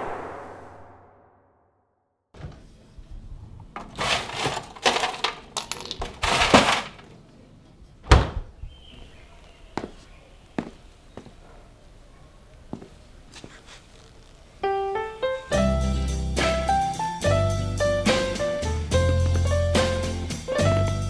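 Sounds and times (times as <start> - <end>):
clattering and rattling in freezer: 3.8 - 7.1.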